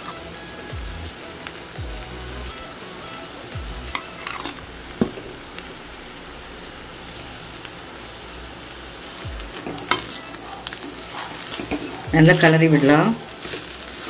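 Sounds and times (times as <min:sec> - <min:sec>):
food sizzling in a pan: 0:00.0 - 0:14.0
spoon scraping metal pan: 0:03.9 - 0:05.3, 0:09.5 - 0:14.0.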